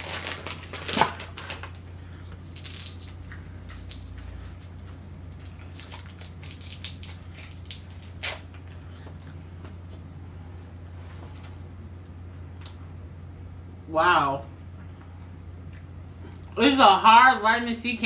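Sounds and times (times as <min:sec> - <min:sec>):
candy wrapper crinkling: 0:00.0 - 0:04.4, 0:05.2 - 0:08.8.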